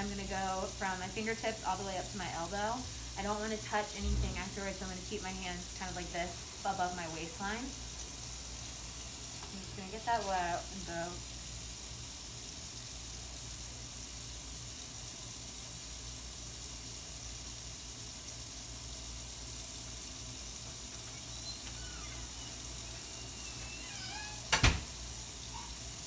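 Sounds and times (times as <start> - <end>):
tap water running into sink: 17.1 - 26.0.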